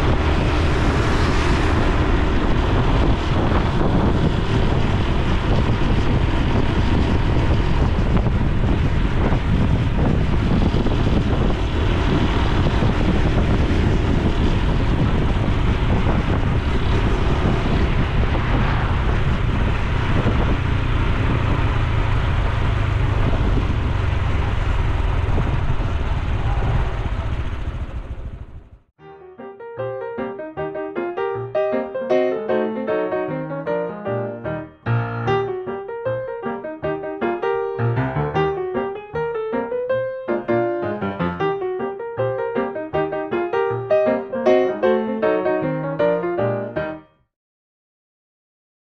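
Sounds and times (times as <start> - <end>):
wind buffeting microphone: 0.0 - 28.8
motorcycle engine running: 0.0 - 28.9.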